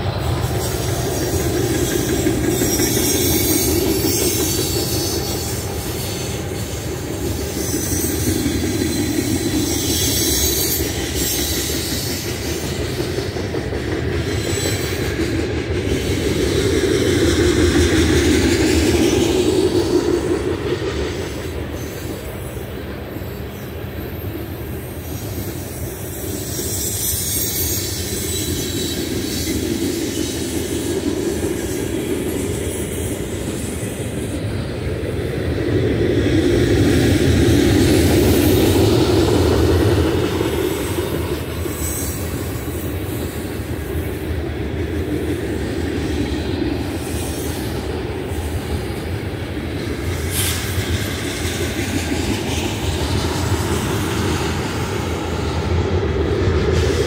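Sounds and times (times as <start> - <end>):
freight train cars rolling on rails: 0.0 - 57.0.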